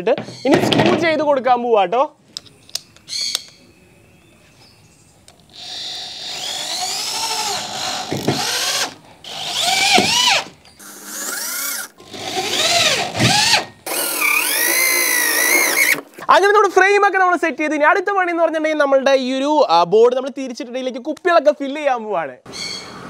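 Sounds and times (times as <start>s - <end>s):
electric drill driving screws: 5.5s - 16.1s.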